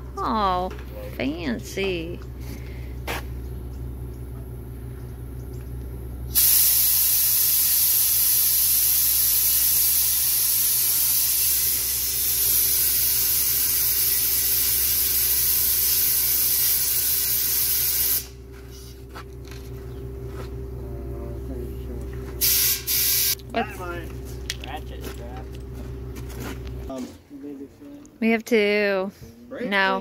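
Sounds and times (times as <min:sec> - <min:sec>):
low steady hum: 0:00.0 - 0:06.4, 0:18.2 - 0:30.0
compressed air hissing: 0:06.3 - 0:18.4, 0:22.4 - 0:23.4.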